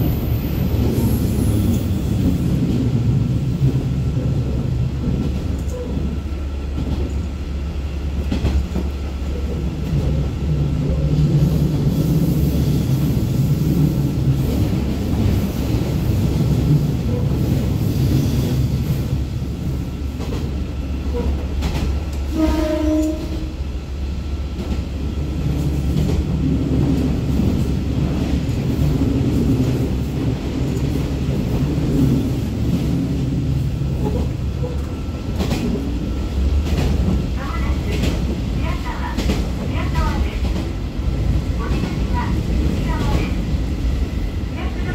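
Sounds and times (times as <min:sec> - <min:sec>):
rail running noise: 0:00.0 - 0:44.9.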